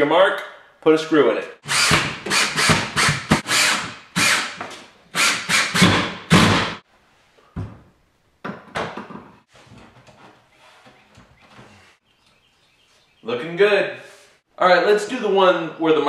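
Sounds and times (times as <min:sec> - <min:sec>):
cordless drill driving screw: 0:01.6 - 0:04.6, 0:05.2 - 0:06.1.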